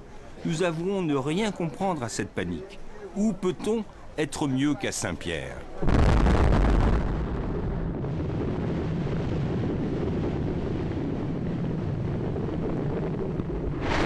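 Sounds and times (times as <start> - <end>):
low rumble of volcanic eruption: 5.8 - 14.0.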